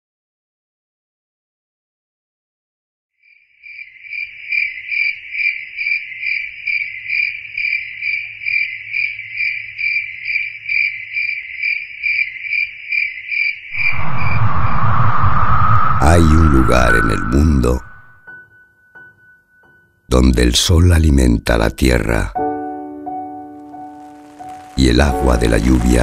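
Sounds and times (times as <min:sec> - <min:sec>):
cricket chirping: 0:03.2 - 0:14.5
loud rushing sound: 0:13.7 - 0:18.2.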